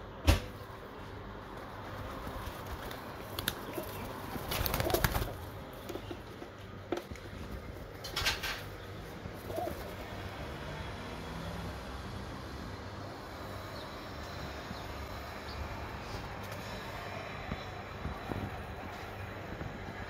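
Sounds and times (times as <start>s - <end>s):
wings flapping: 1.6s - 6.4s, 7.0s - 10.1s
pigeons cooing: 3.1s - 6.1s, 8.2s - 10.6s.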